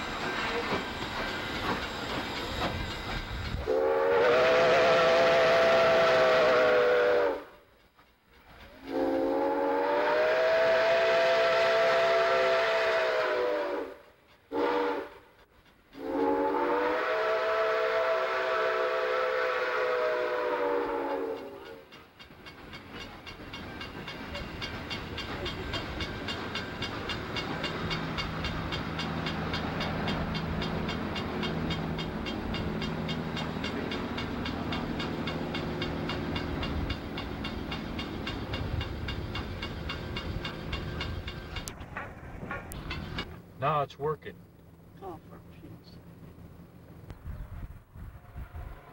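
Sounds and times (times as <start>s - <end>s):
wheels clicking on rails: 0.0s - 3.7s, 14.0s - 16.5s, 20.8s - 44.8s
train cars running noise: 0.0s - 48.9s
steam whistle blasts: 3.6s - 7.6s, 8.8s - 15.3s, 16.0s - 21.8s, 48.0s - 48.9s.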